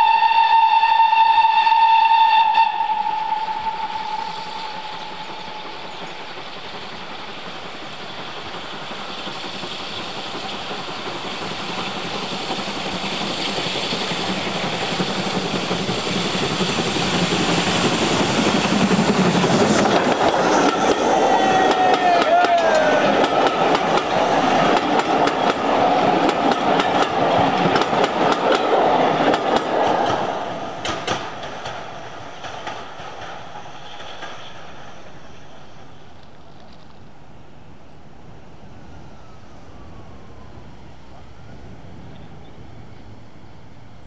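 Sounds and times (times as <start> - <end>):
steam locomotive whistle: 0.0 - 5.8, 14.4 - 24.6
locomotive steam hiss and running: 0.0 - 44.0.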